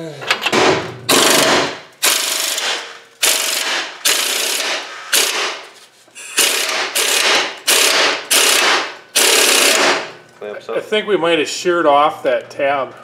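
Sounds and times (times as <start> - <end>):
impact wrench hammering: 0.3 - 5.7, 6.3 - 10.2.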